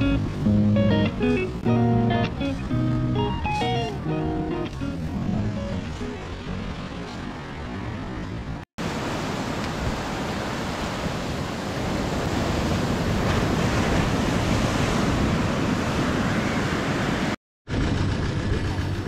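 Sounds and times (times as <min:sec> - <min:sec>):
sea surf washing onto beach: 0:08.8 - 0:17.4.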